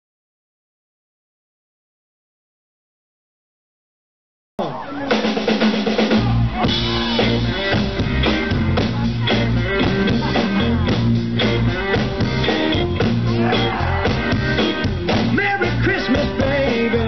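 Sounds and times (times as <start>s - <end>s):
blues-rock band playing: 4.6s - 17.0s.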